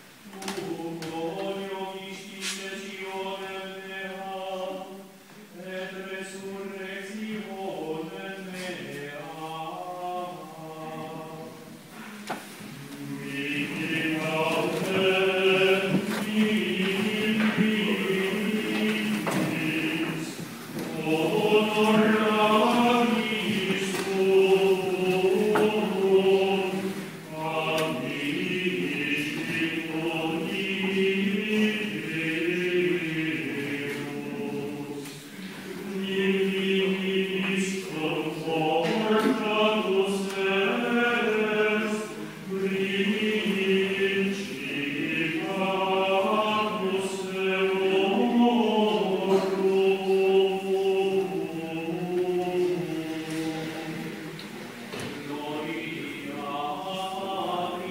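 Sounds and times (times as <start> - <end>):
choir singing chant: 0.0 - 57.9.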